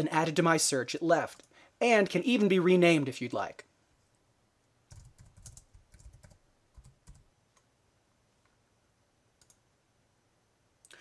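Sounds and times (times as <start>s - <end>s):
faint keyboard typing: 4.9s - 7.7s, 9.4s - 9.6s.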